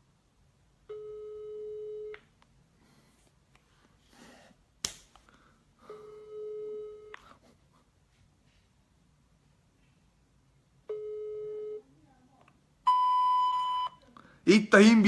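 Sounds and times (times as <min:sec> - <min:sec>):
telephone ringback tone: 0:00.9 - 0:02.1, 0:05.9 - 0:07.2, 0:10.9 - 0:11.8.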